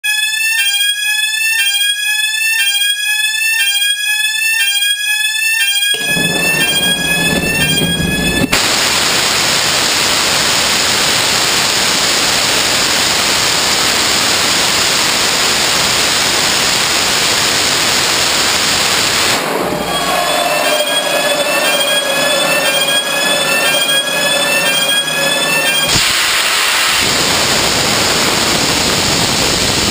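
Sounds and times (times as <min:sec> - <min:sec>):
sweeping electronic warning tone: 0:00.0 - 0:08.8, 0:19.4 - 0:26.0
faint steady whistle: 0:05.9 - 0:08.6
rocket motor roaring: 0:06.0 - 0:29.9
igniter hiss: 0:08.6 - 0:19.9, 0:25.9 - 0:29.9.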